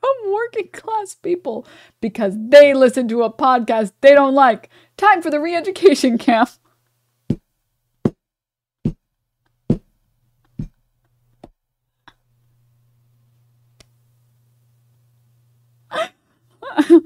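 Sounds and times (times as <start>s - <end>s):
woman stifled laughter: 15.9s - 17.0s.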